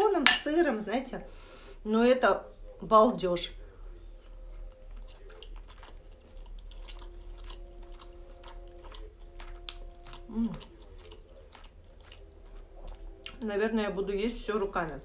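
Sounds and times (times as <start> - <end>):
person chewing with wet clicks: 4.2 - 13.5.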